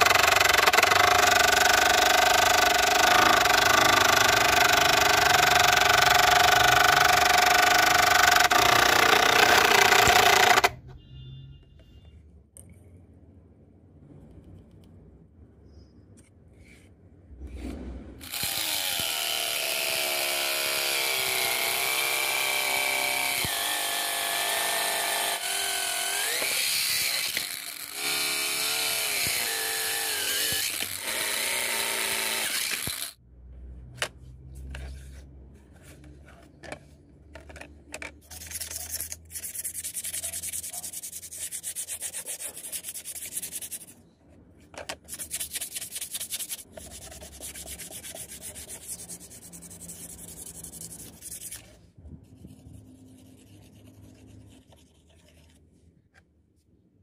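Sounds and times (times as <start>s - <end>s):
angle grinder cutting plastic: 0.0s - 10.8s, 18.2s - 33.2s
sandpaper rubbing plastic: 38.2s - 44.0s, 45.0s - 51.8s.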